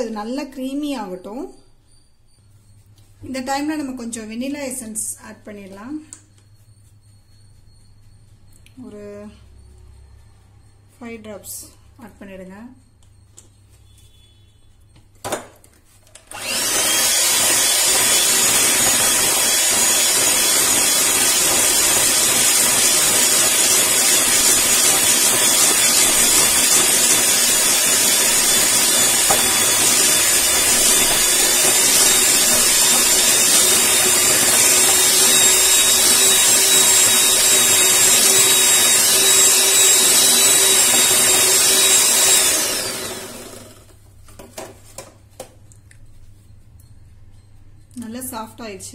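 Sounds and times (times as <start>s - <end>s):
electric hand mixer whining: 16.2s - 44.0s.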